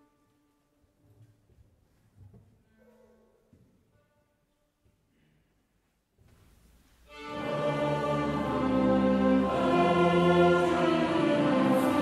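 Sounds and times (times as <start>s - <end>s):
choir singing slow chords: 7.1s - 12.0s
string orchestra with winds: 7.1s - 12.0s.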